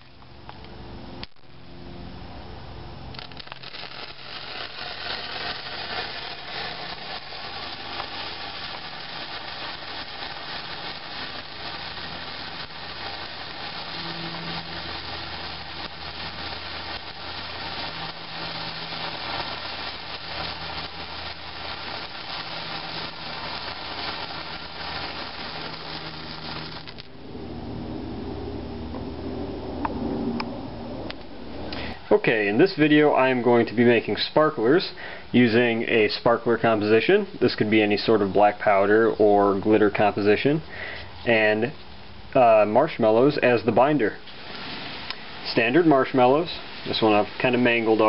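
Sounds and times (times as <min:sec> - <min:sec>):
sparkler hissing and crackling: 0:03.0 - 0:27.2, 0:31.8 - 0:38.9, 0:42.0 - 0:48.0.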